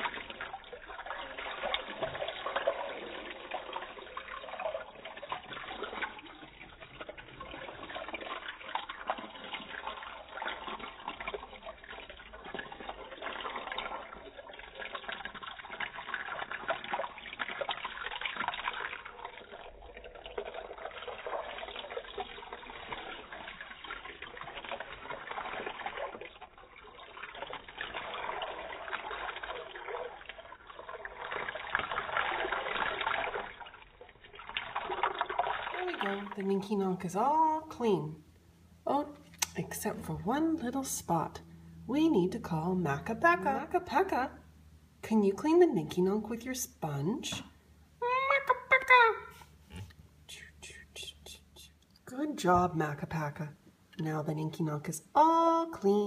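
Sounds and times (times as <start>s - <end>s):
water pouring onto plastic toys: 0.0s - 38.1s
water splashing in shallow water: 0.0s - 38.1s.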